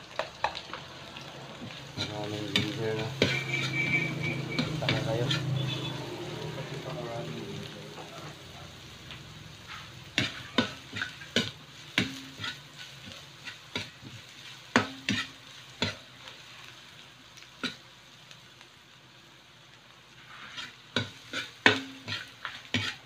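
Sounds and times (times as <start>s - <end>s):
faint frying sizzle: 0.0s - 23.0s
metal ladle scraping a wok: 1.9s - 6.0s, 9.6s - 13.9s, 20.2s - 23.0s.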